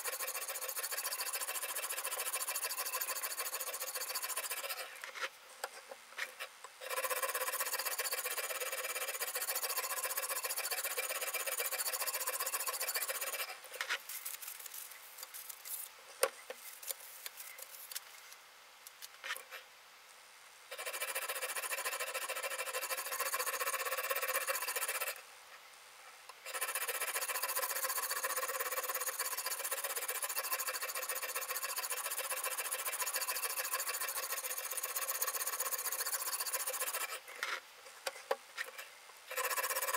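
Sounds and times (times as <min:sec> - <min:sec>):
sharpening stone grinding on knife: 0:00.0 - 0:04.9, 0:06.8 - 0:13.6, 0:20.7 - 0:25.2, 0:26.5 - 0:37.2, 0:39.3 - 0:39.9.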